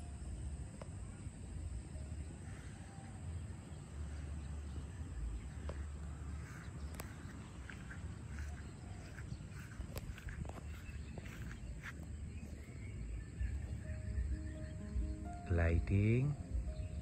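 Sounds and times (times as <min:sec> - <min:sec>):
faint outdoor background noise: 0:00.0 - 0:17.0
wind buffeting microphone: 0:03.5 - 0:15.3.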